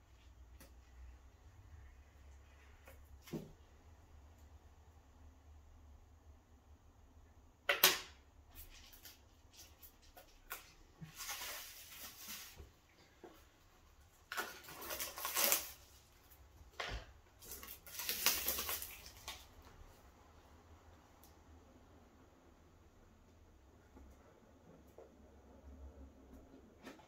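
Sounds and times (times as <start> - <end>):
bubble wrap rustling: 8.5 - 16.5, 17.3 - 20.0.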